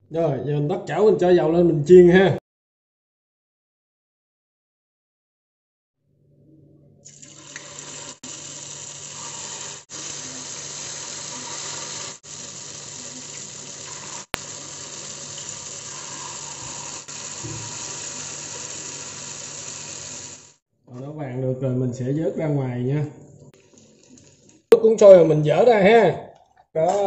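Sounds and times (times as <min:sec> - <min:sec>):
food deep-frying in oil: 0:07.1 - 0:20.6, 0:23.6 - 0:24.7.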